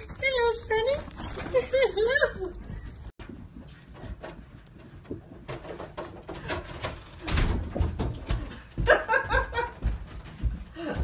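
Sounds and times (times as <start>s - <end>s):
cat climbing carpeted stairs: 3.2s - 11.0s.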